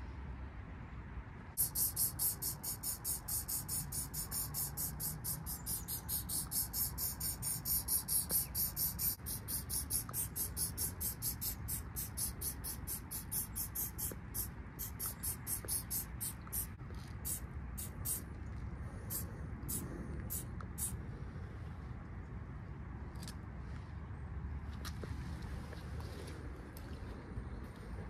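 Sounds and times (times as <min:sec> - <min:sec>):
spray can short hisses: 0:01.6 - 0:18.2.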